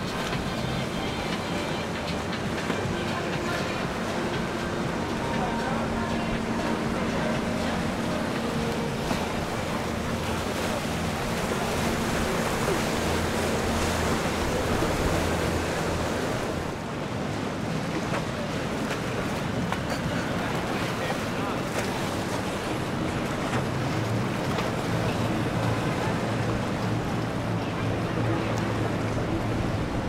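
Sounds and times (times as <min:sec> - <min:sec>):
boat engine drone: 0:00.0 - 0:30.0
rushing water: 0:00.0 - 0:30.0.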